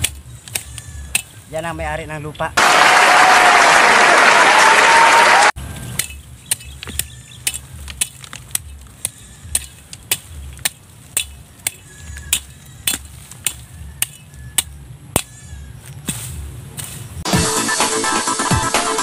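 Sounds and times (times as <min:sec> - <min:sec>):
machete chopping into soil: 0:00.0 - 0:01.4, 0:05.8 - 0:17.1.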